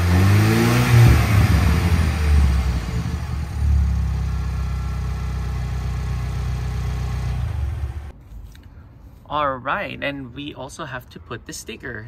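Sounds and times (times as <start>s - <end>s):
car engine idling: 0.0s - 8.1s.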